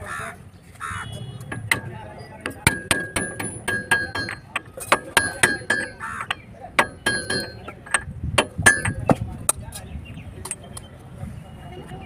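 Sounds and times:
hammer striking steel: 0:01.5 - 0:09.2.

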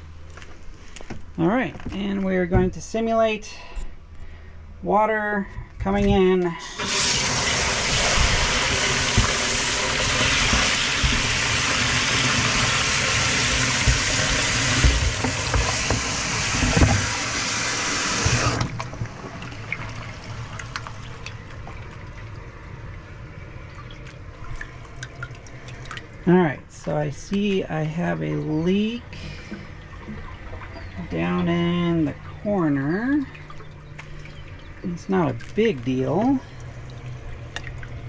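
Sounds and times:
hose water splashing into box: 0:06.6 - 0:22.1.

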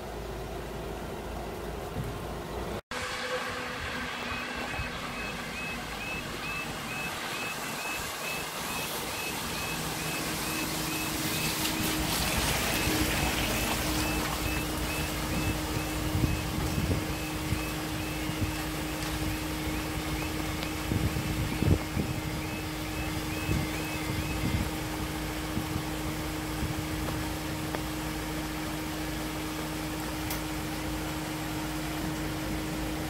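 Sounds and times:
low hum: 0:00.0 - 0:33.0
traffic on wet road: 0:00.0 - 0:33.0
level crossing alarm tones: 0:03.7 - 0:25.0.

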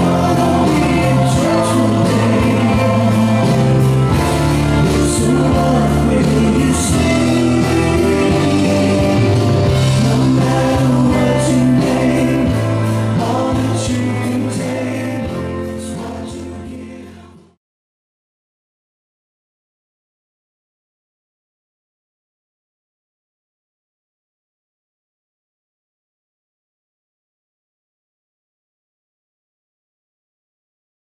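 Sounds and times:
song with singing over a beat: 0:00.0 - 0:17.6.

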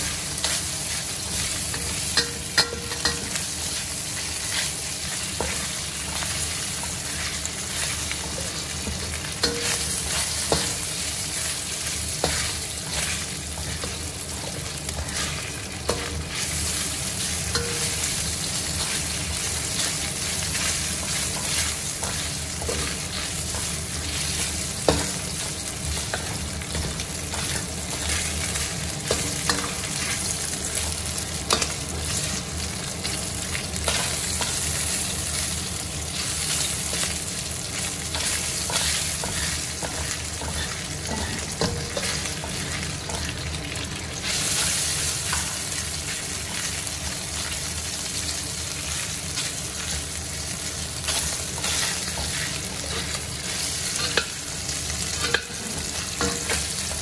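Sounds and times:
meat sizzling in a wok: 0:00.0 - 0:57.0
metal spatula scraping a pan: 0:38.1 - 0:43.4, 0:51.1 - 0:54.4.

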